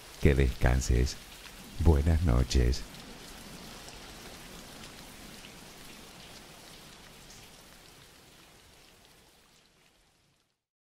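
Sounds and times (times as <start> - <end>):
steady rain pattering: 0.0 - 10.7.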